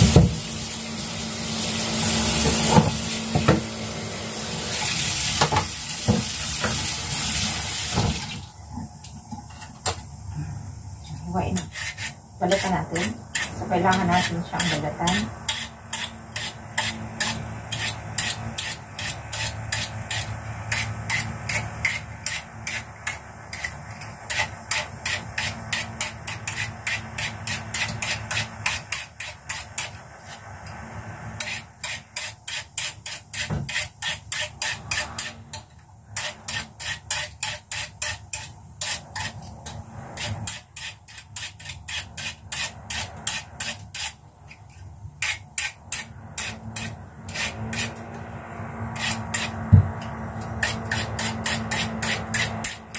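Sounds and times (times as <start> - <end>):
peeler rasping on root: 11.6 - 30.4, 36.2 - 48.1, 48.9 - 52.9.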